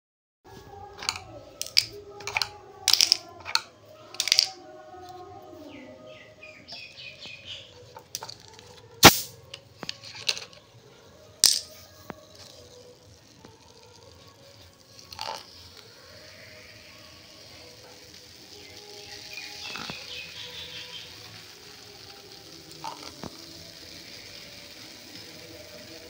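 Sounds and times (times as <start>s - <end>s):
sharp plastic clacks on concrete: 1.0s - 4.6s, 6.7s - 10.7s, 11.4s - 14.2s, 17.5s - 26.0s.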